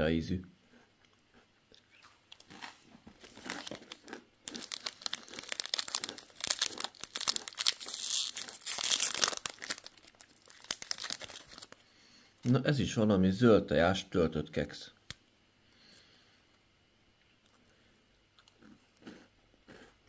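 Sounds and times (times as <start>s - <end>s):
snack wrapper crinkling and tearing: 1.0s - 11.8s.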